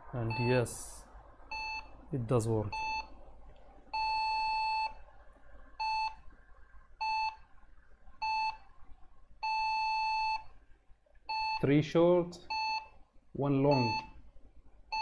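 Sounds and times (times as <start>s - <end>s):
computer beeper beeps: 0.2s - 0.8s, 13.7s - 14.1s.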